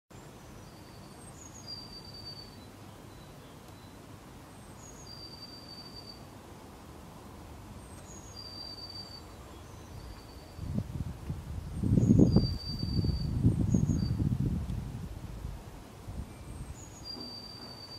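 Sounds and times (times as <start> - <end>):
small songbird singing: 0.2 - 6.3, 7.8 - 10.8, 11.5 - 14.5, 16.3 - 17.9.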